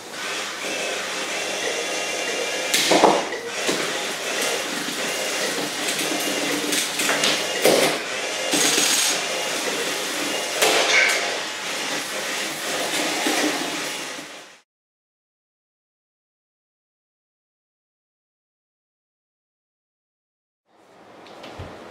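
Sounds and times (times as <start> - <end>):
electric motors whirring: 0.0 - 14.6.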